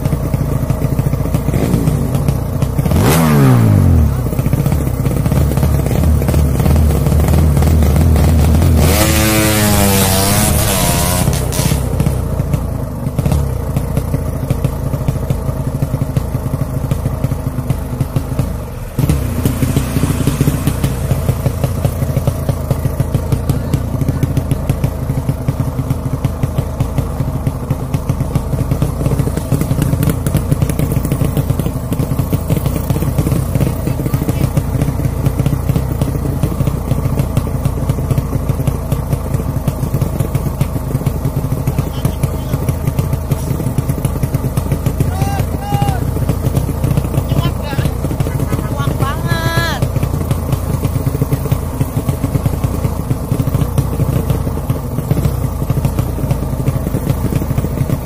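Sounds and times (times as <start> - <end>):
motorcycle engine revving and idling: 0.0 - 58.0.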